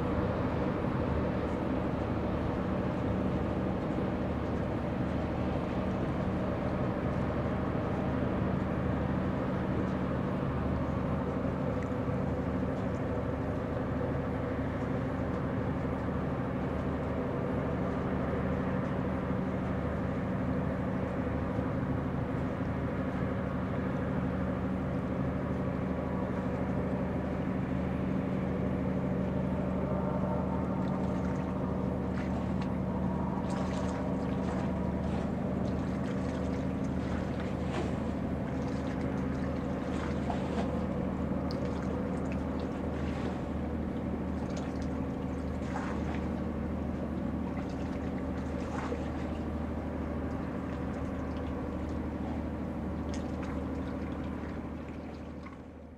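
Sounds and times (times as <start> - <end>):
ship diesel engine drone: 0.0 - 55.9.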